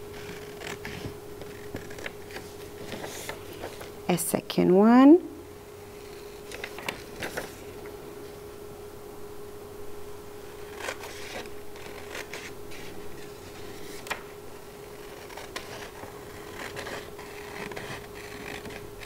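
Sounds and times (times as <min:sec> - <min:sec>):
scissors snipping paper: 0:10.6 - 0:13.0, 0:14.9 - 0:18.9.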